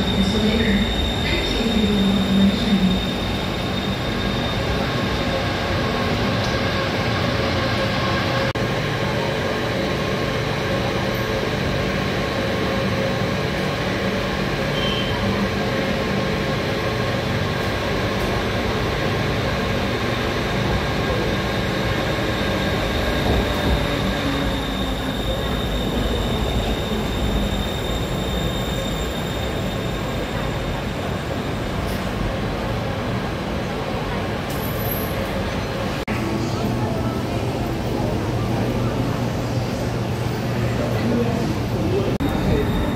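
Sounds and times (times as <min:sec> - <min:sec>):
metro train rumble: 0:00.0 - 0:42.9
train whining tones: 0:09.2 - 0:32.4.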